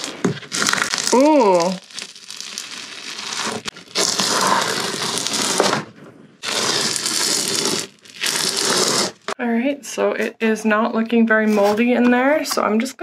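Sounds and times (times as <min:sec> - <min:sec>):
hand scraper scraping fiberglass: 0:03.0 - 0:05.8, 0:06.4 - 0:09.4.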